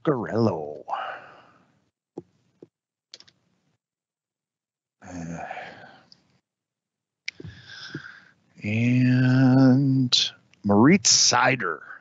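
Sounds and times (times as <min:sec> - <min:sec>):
breathy sigh: 0:07.4 - 0:08.2.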